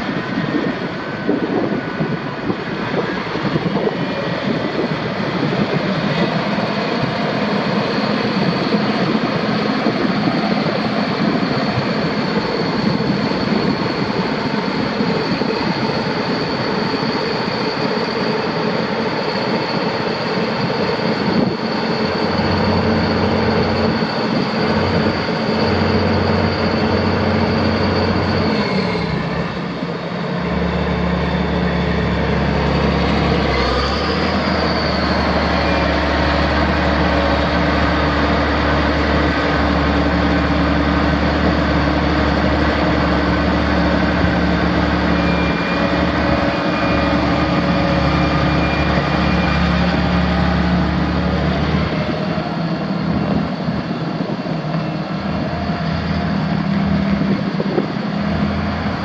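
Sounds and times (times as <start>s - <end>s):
steady high whine: 0.0s - 59.0s
tractor diesel engine running: 0.0s - 59.0s.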